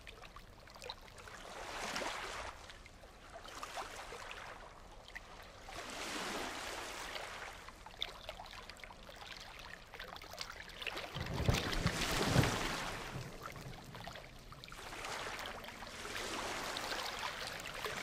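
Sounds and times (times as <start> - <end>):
ocean surf washing onto beach: 11.2 - 18.0.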